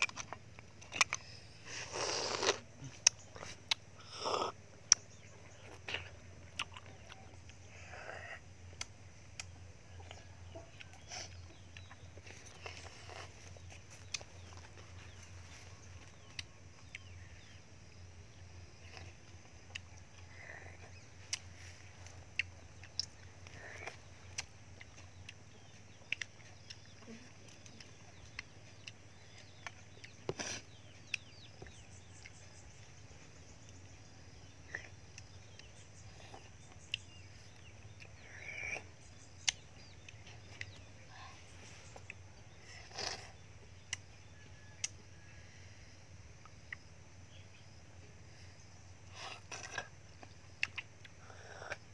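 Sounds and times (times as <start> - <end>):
snail shells clicking: 0.0 - 1.4.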